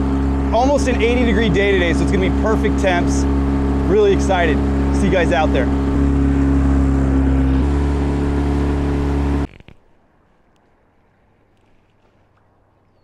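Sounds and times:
outboard motor running: 0:00.0 - 0:13.0
small ticks: 0:09.4 - 0:10.8.

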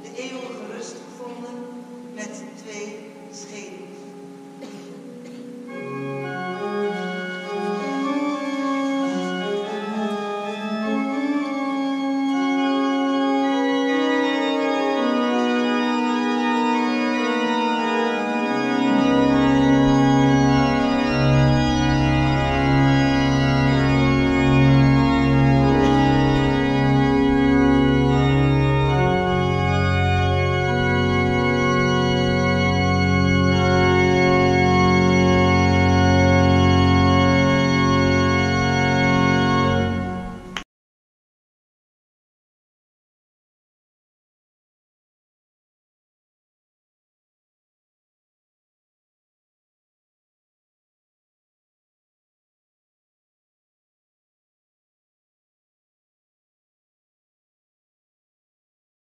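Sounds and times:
pipe organ chords: 0:00.0 - 0:40.6
deep pedal bass notes: 0:18.4 - 0:40.6.

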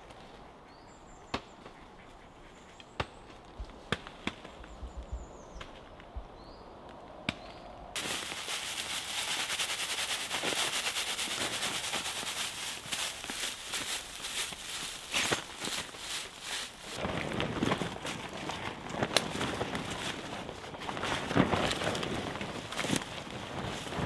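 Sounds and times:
straw crackling rustle: 0:08.0 - 0:24.0.

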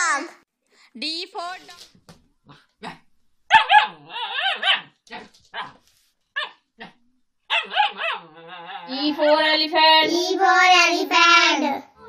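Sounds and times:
puppy yipping and barking: 0:03.5 - 0:05.0, 0:06.4 - 0:06.6, 0:07.5 - 0:08.9.

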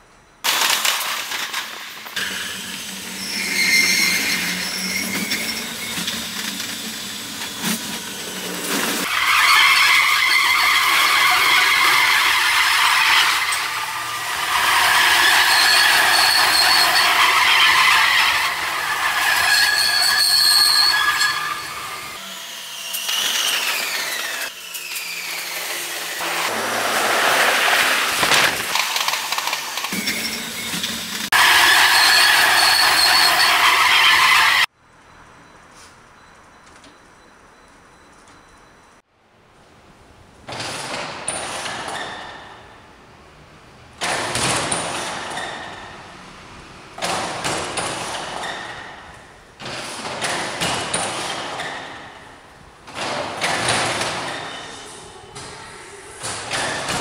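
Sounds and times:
high-pitched wheel squeal: 0:02.2 - 0:07.8, 0:08.7 - 0:22.2, 0:29.0 - 0:35.9
train rumble and hiss in tunnel: 0:54.7 - 0:56.4.

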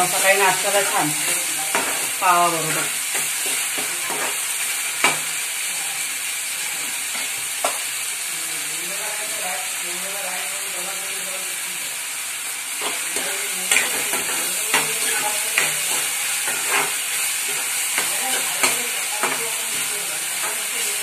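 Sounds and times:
onion sizzling in oil: 0:00.0 - 0:21.0
metal spatula scraping pan: 0:00.8 - 0:04.4, 0:12.8 - 0:20.6.

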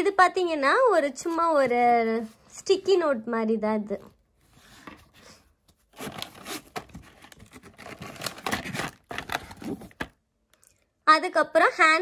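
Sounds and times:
hands rummaging through packets: 0:05.9 - 0:10.2.

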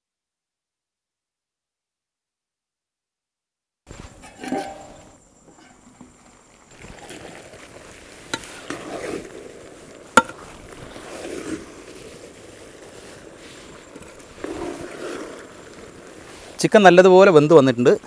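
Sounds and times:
metal spatula scraping pan: 0:04.2 - 0:05.9.

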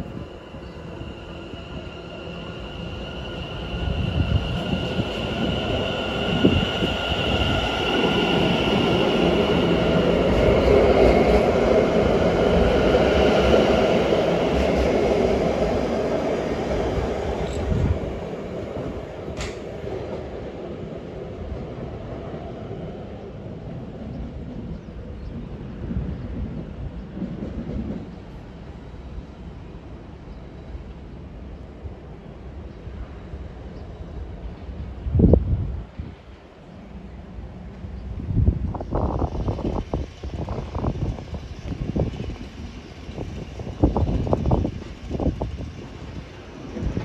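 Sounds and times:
train high whine: 0:00.0 - 0:23.5
train wheels rumbling on rail: 0:00.0 - 0:31.0, 0:31.6 - 0:47.0.

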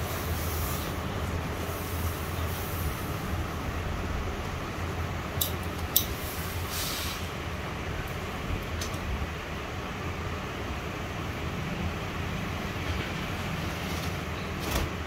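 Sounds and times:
steam hissing: 0:00.0 - 0:03.3, 0:06.0 - 0:07.5.

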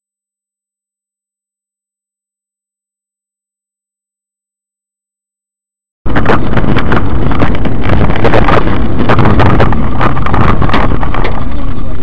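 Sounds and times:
distorted road and wind noise: 0:06.1 - 0:12.0.

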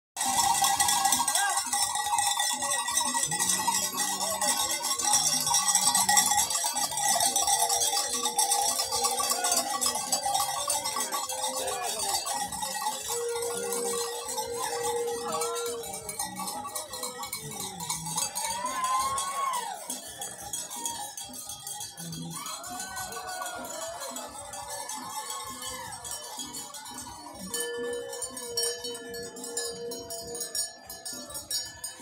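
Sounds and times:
metal bells clanking: 0:00.2 - 0:32.0
people calling: 0:00.2 - 0:32.0.

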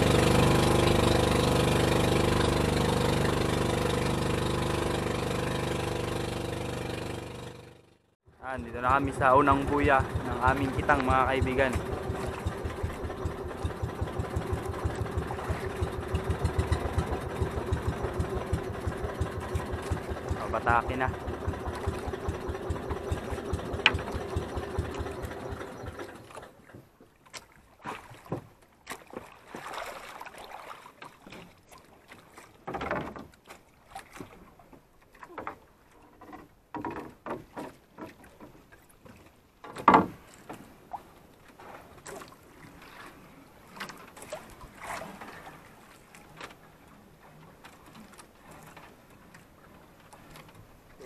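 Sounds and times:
small boat engine running: 0:00.0 - 0:27.0, 0:41.6 - 0:51.0
water lapping at hull: 0:00.0 - 0:51.0
gear knocking against boat: 0:08.6 - 0:27.0.

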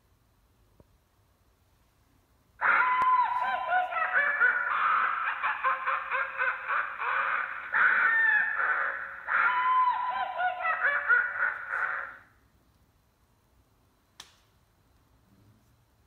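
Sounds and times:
screaming sound effect from speaker: 0:02.6 - 0:04.8, 0:07.7 - 0:10.7
wavering cackling cries: 0:02.6 - 0:12.4.

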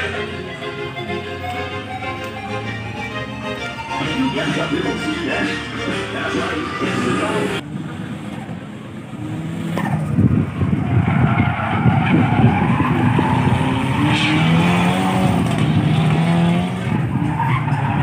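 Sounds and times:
tyres squealing on tarmac: 0:03.6 - 0:07.6, 0:10.8 - 0:14.7, 0:16.9 - 0:18.0
car engine revving hard: 0:05.6 - 0:11.1, 0:11.8 - 0:18.0.

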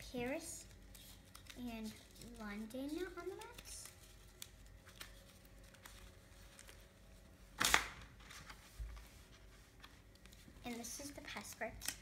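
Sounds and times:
paper handling noise: 0:00.1 - 0:12.0.

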